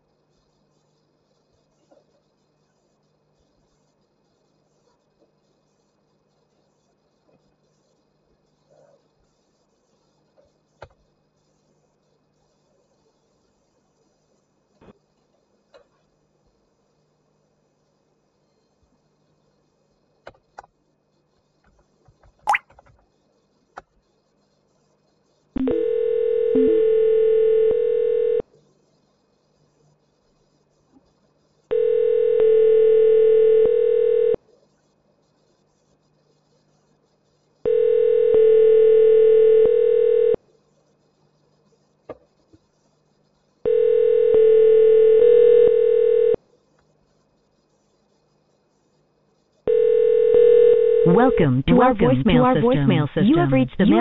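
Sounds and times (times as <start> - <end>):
telephone ringback tone: 25.6 - 28.4, 31.7 - 34.4, 37.7 - 40.4, 43.7 - 46.4, 49.7 - 52.3.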